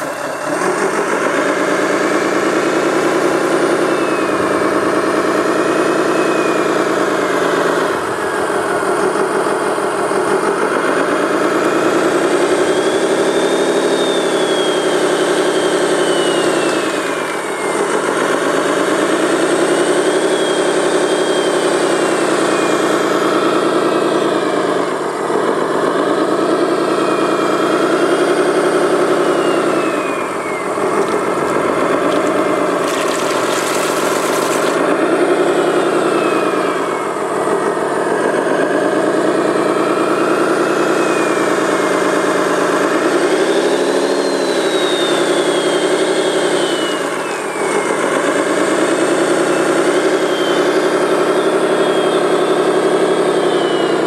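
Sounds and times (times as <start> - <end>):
model loader engine rising and falling: 0.0 - 25.5, 26.2 - 54.0
high whistle sliding down: 12.5 - 18.8, 19.9 - 23.8, 39.8 - 54.0.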